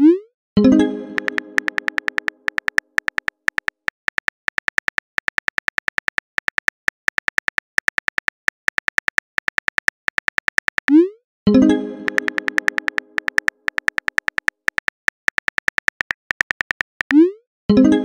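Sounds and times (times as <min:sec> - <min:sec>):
keyboard typing clicks: 0:01.1 - 0:11.0, 0:12.0 - 0:17.2.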